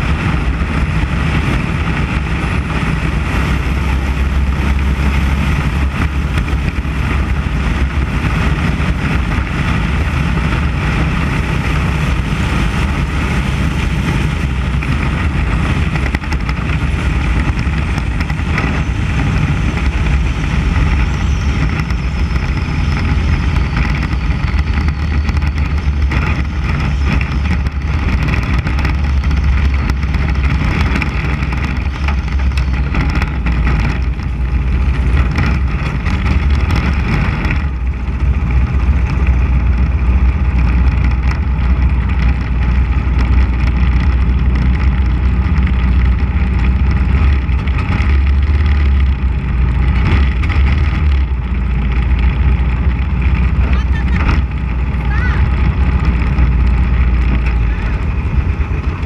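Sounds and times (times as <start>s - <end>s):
race car engine at low revs: 0.0s - 59.0s.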